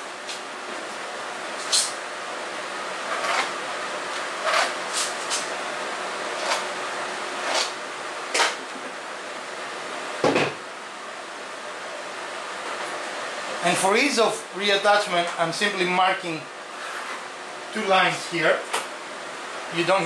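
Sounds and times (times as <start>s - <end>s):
steady room hiss: 0.0s - 20.0s.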